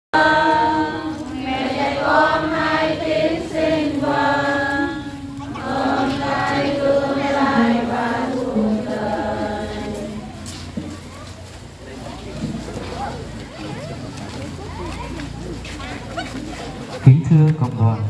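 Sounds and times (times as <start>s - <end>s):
choir singing a hymn: 0.2s - 11.0s.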